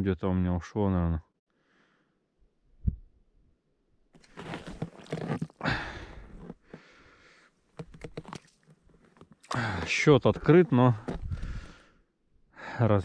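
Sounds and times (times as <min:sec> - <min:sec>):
rustling and handling noise: 0:04.2 - 0:05.6, 0:07.6 - 0:11.7.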